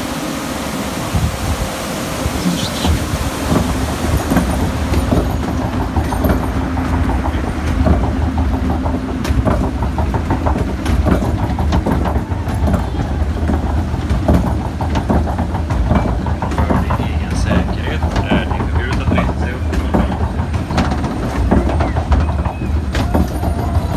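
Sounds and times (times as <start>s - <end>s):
conveyor belt rumbling over rollers: 0.0s - 23.9s
steady hum: 0.0s - 23.9s.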